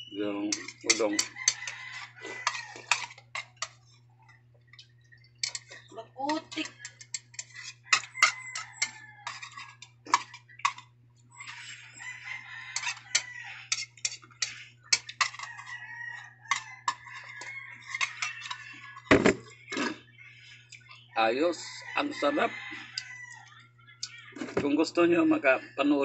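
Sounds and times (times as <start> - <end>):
chopsticks clicking against bowl: 6.5 - 9.0.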